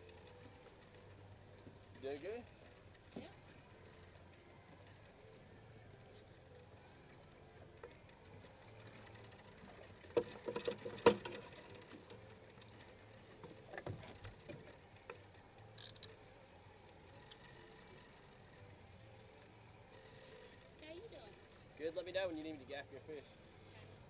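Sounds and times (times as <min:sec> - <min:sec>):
fishing reel clicks and knocks: 0:08.8 - 0:12.3, 0:13.4 - 0:16.3.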